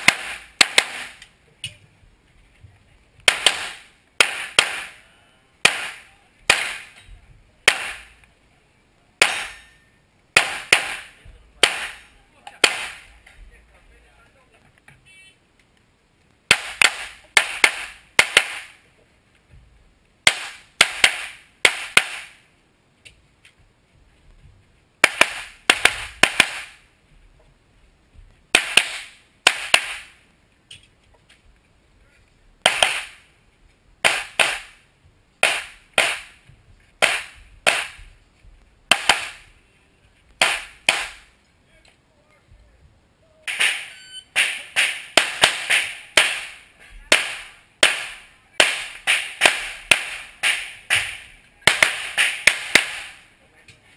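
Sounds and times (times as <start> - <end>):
pistol shots: 0.0 - 1.2, 3.2 - 5.0, 5.6 - 7.0, 7.6 - 8.2, 9.2 - 9.6, 10.4 - 13.1, 16.5 - 18.8, 20.2 - 22.4, 25.0 - 26.8, 28.5 - 30.2, 32.6 - 33.2, 34.0 - 34.8, 35.4 - 36.4, 37.0 - 38.0, 38.9 - 39.5, 40.4 - 41.3, 43.5 - 53.3.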